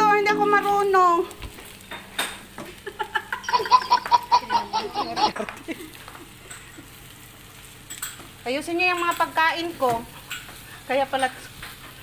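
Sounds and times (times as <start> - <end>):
person laughing: 2.7 - 7.0.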